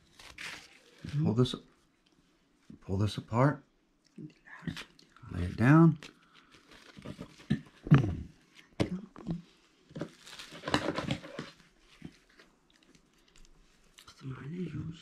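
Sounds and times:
rustling: 9.4s - 14.0s.

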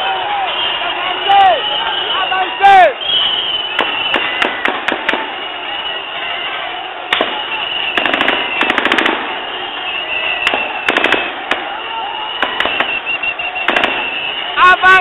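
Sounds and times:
protest crowd noise: 0.0s - 15.0s
shrill whistling: 0.2s - 4.6s, 5.4s - 6.5s, 7.2s - 8.9s, 9.5s - 15.0s
bursts of sharp cracks: 3.7s - 5.4s, 7.1s - 9.6s, 10.4s - 14.6s.

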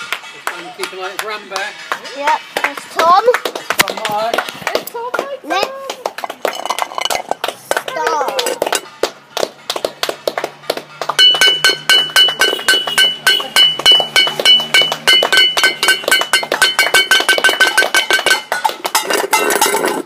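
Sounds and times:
hands clapping: 0.0s - 19.0s
metal pan struck rapidly: 11.0s - 20.0s
pan ringing at steady pitch: 11.1s - 19.9s.

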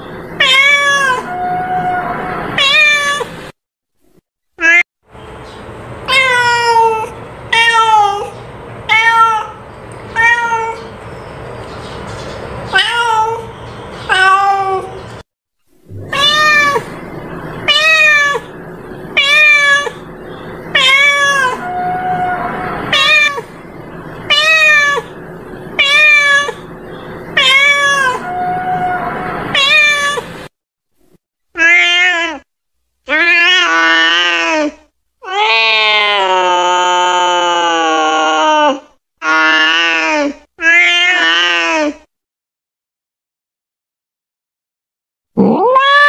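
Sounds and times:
cat meowing: 0.4s - 3.3s, 6.1s - 10.9s, 12.7s - 13.5s, 14.1s - 15.0s, 15.9s - 17.0s, 17.6s - 20.1s, 20.7s - 23.5s, 24.3s - 25.2s, 25.8s - 26.7s, 27.3s - 30.3s, 31.6s - 32.4s, 38.2s - 42.0s, 45.4s - 46.0s.

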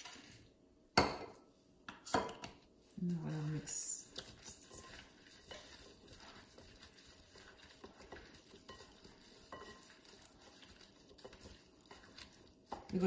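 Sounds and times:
soft wet shuffling of potato wedges: 2.8s - 13.0s.

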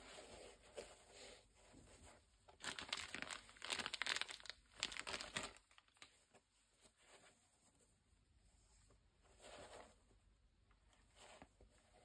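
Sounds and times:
plastic bag crinkling: 2.6s - 6.1s.

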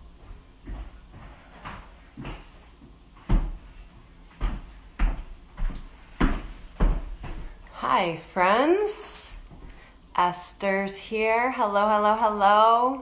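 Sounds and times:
dull knocks and thumps: 3.2s - 3.8s, 4.4s - 7.6s.

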